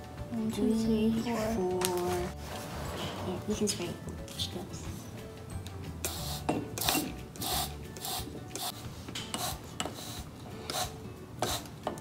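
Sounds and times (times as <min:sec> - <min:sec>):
spray bottle hissing: 0:06.0 - 0:08.8, 0:09.4 - 0:11.7.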